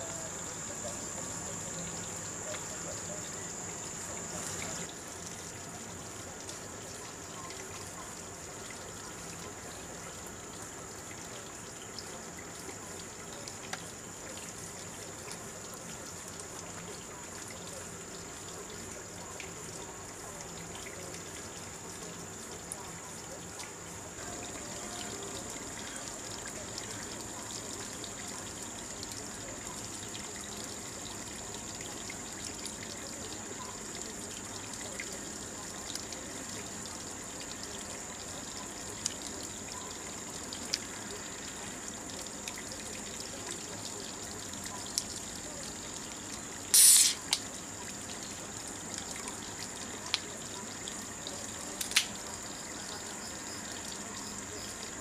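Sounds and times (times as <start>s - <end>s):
trickling water rush: 0.0s - 55.0s
loud high-pitched burst: 46.7s - 47.3s.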